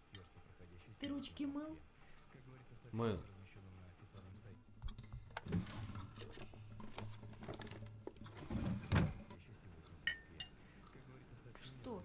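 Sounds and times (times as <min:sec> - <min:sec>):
papers rustling: 0:05.4 - 0:09.2.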